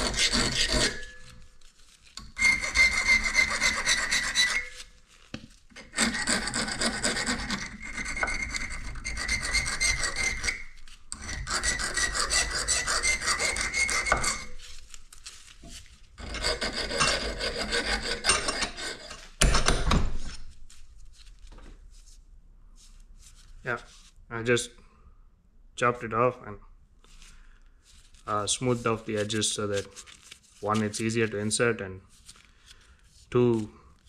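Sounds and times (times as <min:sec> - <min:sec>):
hand file rasping on metal bolt: 0:00.0 - 0:01.3, 0:02.2 - 0:04.7, 0:05.8 - 0:14.6, 0:16.2 - 0:19.8.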